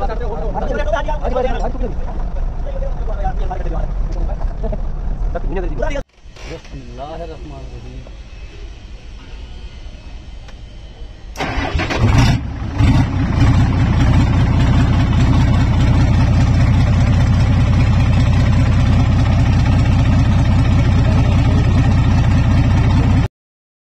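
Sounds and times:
diesel truck engine running: 7.5s - 23.3s
diesel engine starter cranking: 11.3s - 16.7s.

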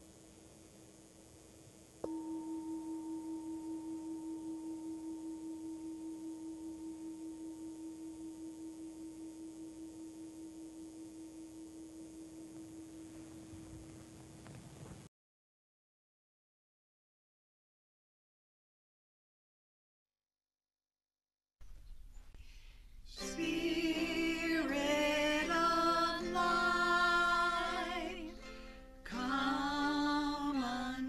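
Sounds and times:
metal singing bowl ringing: 2.0s - 14.2s.

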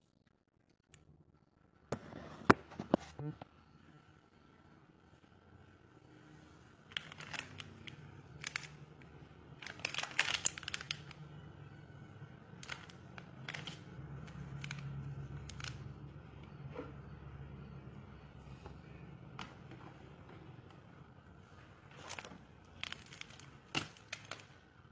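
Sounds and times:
foil sachet crinkling: 9.6s - 11.2s, 12.5s - 15.8s, 21.9s - 24.6s.

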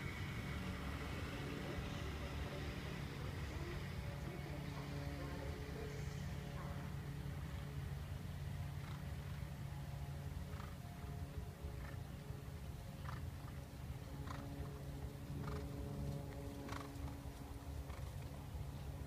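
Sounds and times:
steady low hum: 0.0s - 19.0s
horse hooves on sand: 10.4s - 11.0s, 12.9s - 18.4s.

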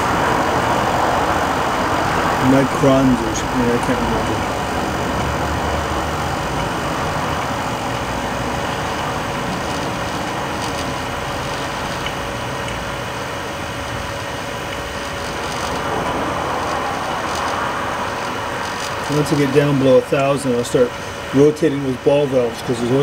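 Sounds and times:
vacuum pump running: 0.0s - 23.0s.

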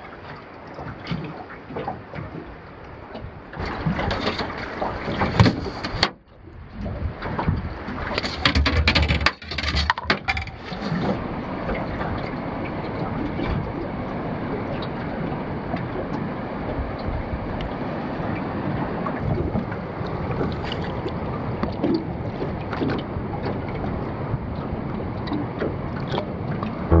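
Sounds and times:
wind: 0.0s - 27.0s.

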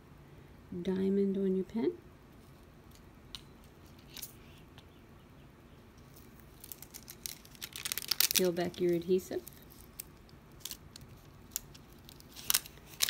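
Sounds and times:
plastic film crinkling as peeled: 6.0s - 13.0s.

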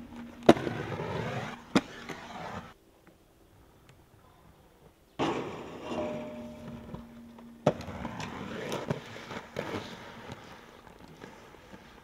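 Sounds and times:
hard skate landing: 0.0s - 2.7s, 5.2s - 12.0s
skates grinding on steel rail: 0.0s - 2.8s, 5.2s - 12.0s
skate wheels rolling on concrete: 0.0s - 12.0s.

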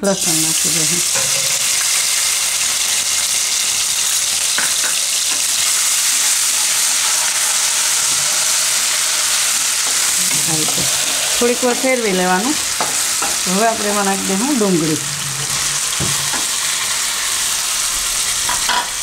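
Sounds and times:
food sizzling in hot oil: 0.0s - 19.0s.

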